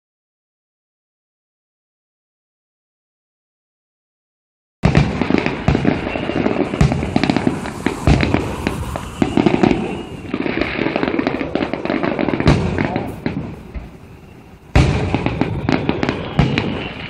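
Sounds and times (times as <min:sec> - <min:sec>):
fireworks bangs and thuds: 0:04.8 - 0:17.0
fireworks crackling: 0:04.8 - 0:17.0.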